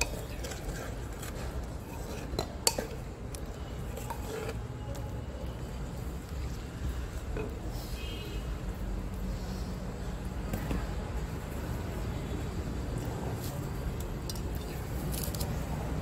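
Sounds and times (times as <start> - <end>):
spatula stirring in clay pot: 0.0 - 7.7.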